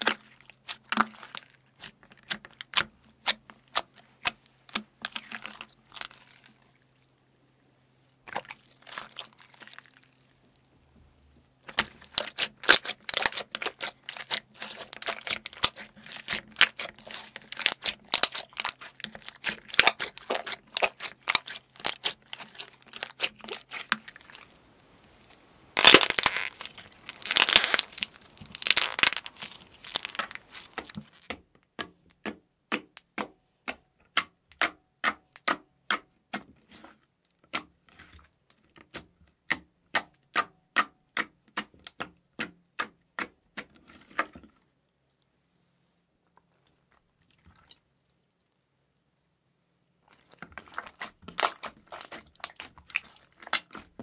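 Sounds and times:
slime crackling and tearing: 0:00.0 - 0:06.7, 0:08.3 - 0:10.5, 0:11.7 - 0:31.3, 0:50.2 - 0:54.0
slime popping and clicking: 0:11.7 - 0:24.4, 0:25.8 - 0:31.4.

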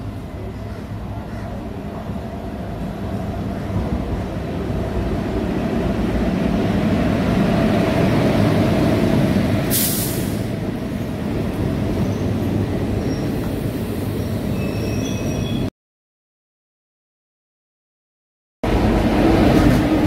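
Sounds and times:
short sharp hiss: 0:09.7 - 0:10.5
train wheels rumbling on rails: 0:18.7 - 0:20.0.

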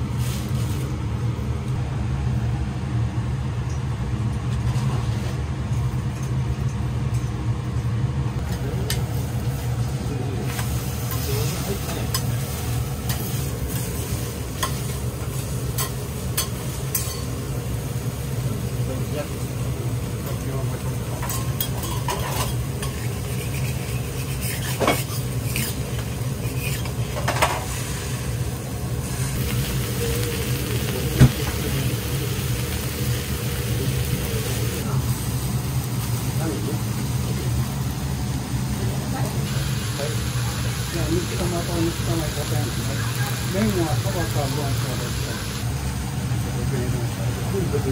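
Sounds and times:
low mechanical hum: 0:00.0 - 0:47.9
steady sizzle: 0:08.3 - 0:47.9
spatula clinking on steel: 0:15.8 - 0:17.3, 0:21.2 - 0:23.1
spatulas scraping a griddle: 0:21.2 - 0:28.3.

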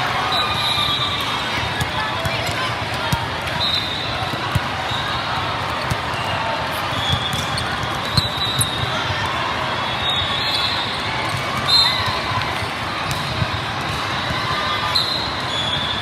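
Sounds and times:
volleyballs smacking and bouncing: 0:01.6 - 0:04.8, 0:05.4 - 0:09.4, 0:11.2 - 0:14.7.

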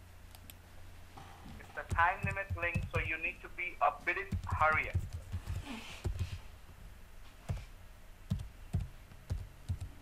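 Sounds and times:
keyboard keystrokes: 0:01.9 - 0:03.1, 0:04.3 - 0:06.3, 0:08.3 - 0:10.0.

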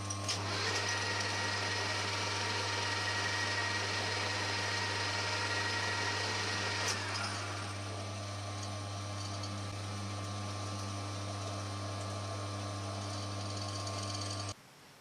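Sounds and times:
metal lathe running: 0:00.0 - 0:14.6.

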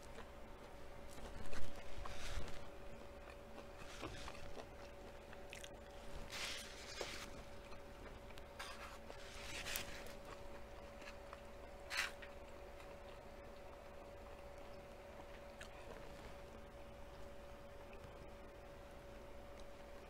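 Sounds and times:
faint steady hum: 0:00.0 - 0:20.0
person chewing: 0:01.0 - 0:16.4.

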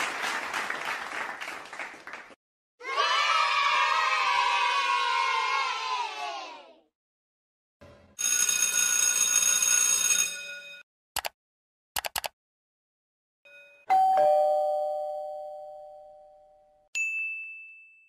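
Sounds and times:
electric school bell ringing: 0:08.2 - 0:10.8, 0:13.5 - 0:16.2
computer mouse clicks: 0:11.2 - 0:11.4, 0:12.0 - 0:12.4
two-note ding-dong chime: 0:13.5 - 0:18.0.

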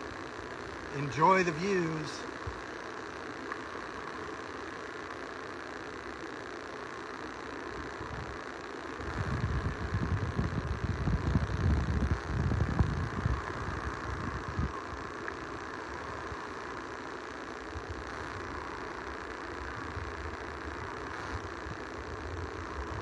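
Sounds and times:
wind buffeting microphone: 0:09.0 - 0:15.1.

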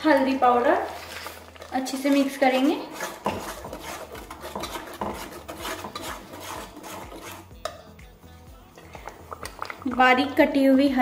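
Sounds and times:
metal spatula scraping a pan: 0:00.4 - 0:07.6.

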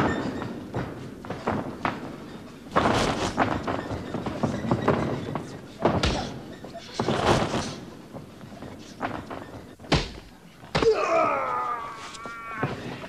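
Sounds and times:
punches thudding: 0:00.0 - 0:07.9, 0:09.0 - 0:11.8
person crying out: 0:10.8 - 0:13.0.

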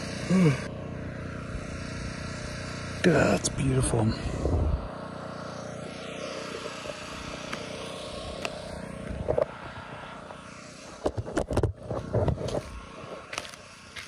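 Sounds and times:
loud machine noise: 0:00.0 - 0:14.0
flip-flop footsteps on dirt: 0:11.0 - 0:14.0.

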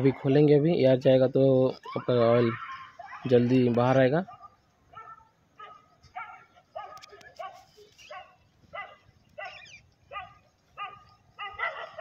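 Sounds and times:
dog barking: 0:02.5 - 0:03.4, 0:04.2 - 0:12.0.

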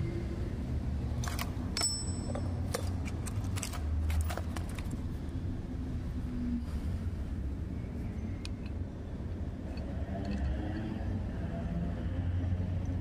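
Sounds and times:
metal parts clicking and clinking: 0:01.2 - 0:05.0, 0:09.6 - 0:11.1.

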